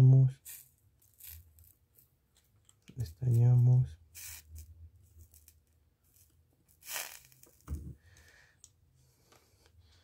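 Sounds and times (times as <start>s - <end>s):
soldering iron hissing: 4.1s - 4.7s, 6.8s - 7.6s.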